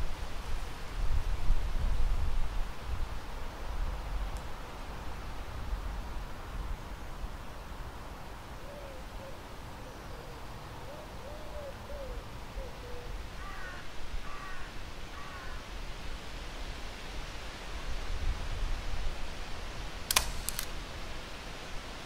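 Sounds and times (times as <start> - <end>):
outdoor ambience hiss: 0.0 - 22.0
bird cooing: 8.6 - 14.6
bird cawing: 11.0 - 15.6.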